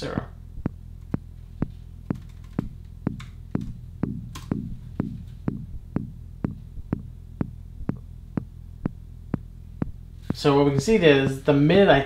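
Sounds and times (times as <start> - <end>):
synthesizer percussive hits: 0.0 - 9.0
steady low drone: 0.0 - 11.6.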